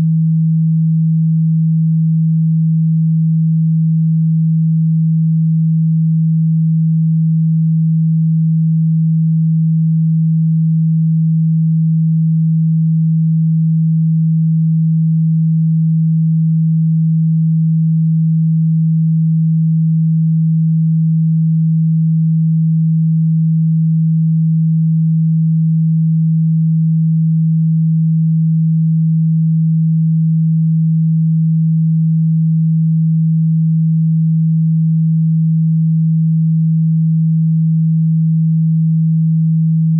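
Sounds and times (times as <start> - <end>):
low electronic sine tone: 0.0 - 39.9.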